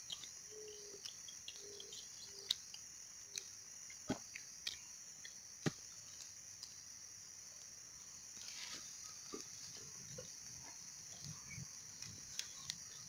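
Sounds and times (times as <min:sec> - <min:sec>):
high-pitched insect drone: 0:00.0 - 0:04.0
sharp clicks and snaps: 0:00.0 - 0:05.4.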